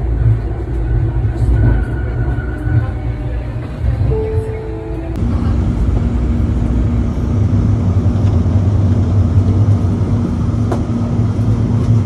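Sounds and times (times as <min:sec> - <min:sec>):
train rumbling on track: 0:00.0 - 0:12.0.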